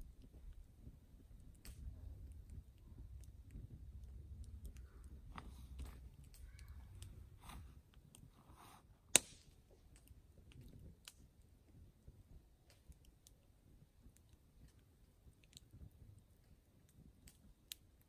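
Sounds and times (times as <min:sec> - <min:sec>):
campfire crackling: 0:00.0 - 0:18.0
sharp pop of fire: 0:09.1 - 0:09.6.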